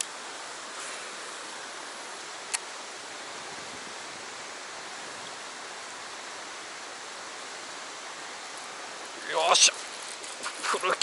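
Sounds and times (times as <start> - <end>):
fast-flowing stream rushing: 0.0 - 11.0.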